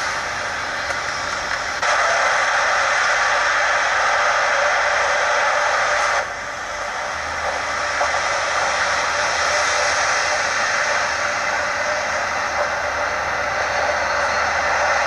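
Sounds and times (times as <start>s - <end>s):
loud steady hiss: 0.0s - 15.0s.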